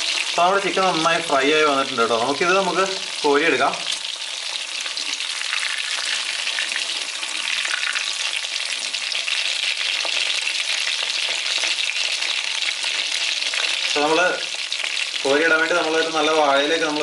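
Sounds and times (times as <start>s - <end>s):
chicken deep-frying in oil: 0.0s - 17.0s.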